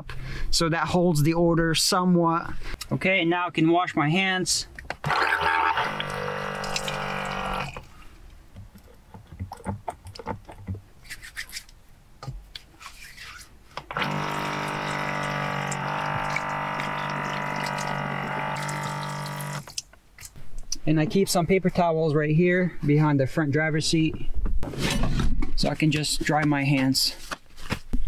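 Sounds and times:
electric water pump running: 5.0 - 7.9, 13.9 - 19.8
small splashes and clicks: 6.0 - 7.1, 14.4 - 20.4
water pouring into metal sink: 6.0 - 7.8, 14.0 - 19.7
soapy hands rubbing: 11.0 - 11.7.

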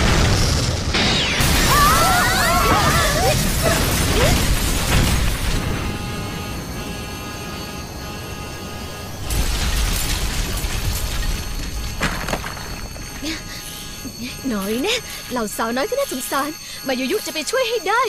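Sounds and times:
loud rumbling crash: 0.0 - 6.0, 9.2 - 13.2
high wavering cries: 1.5 - 4.6, 13.0 - 18.0.

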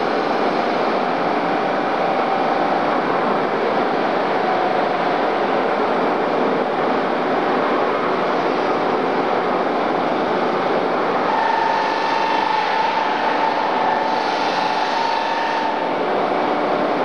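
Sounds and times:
steady machine whine: 0.0 - 17.0
polishing machine running: 11.3 - 16.2.

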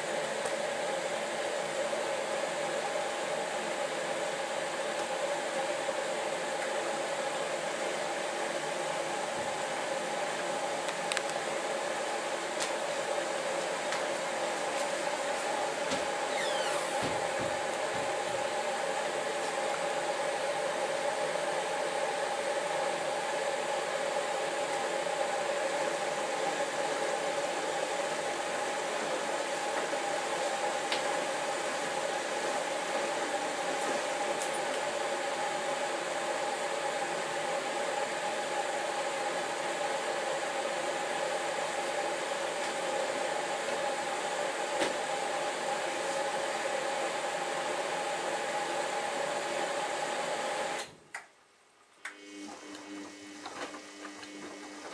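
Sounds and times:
washing machine humming: 0.0 - 51.0, 52.0 - 54.9.

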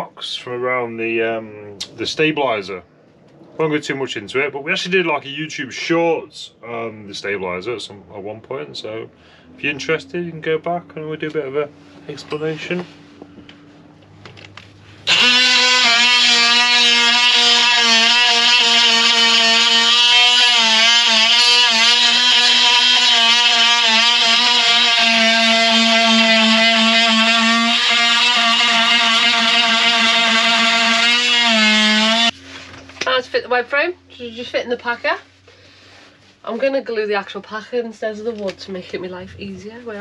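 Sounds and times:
grinder whining on steel: 14.4 - 32.4.

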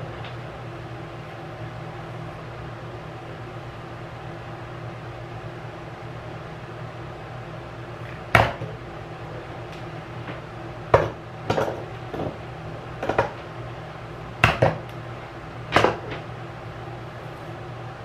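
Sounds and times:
steady low hum: 0.0 - 18.0
hard objects knocking and clattering: 11.0 - 12.4, 13.0 - 13.4.

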